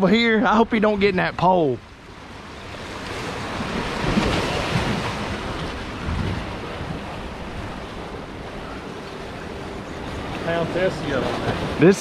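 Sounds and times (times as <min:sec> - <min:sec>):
surf breaking on rocks: 0:02.8 - 0:12.0.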